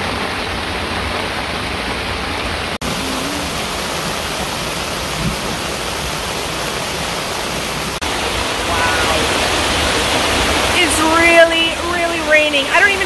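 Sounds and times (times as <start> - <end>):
heavy rain on grass: 0.0 - 13.0
rain beating on tent: 0.0 - 13.0.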